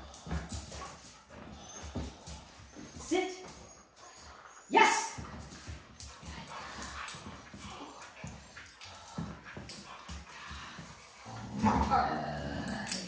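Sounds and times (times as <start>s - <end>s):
dog scuffling: 0.0s - 4.5s, 5.1s - 13.0s.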